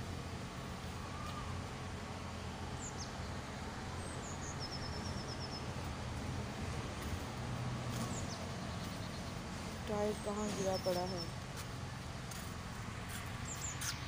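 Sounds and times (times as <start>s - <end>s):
small birds chirping: 2.8s - 6.1s, 7.9s - 14.0s.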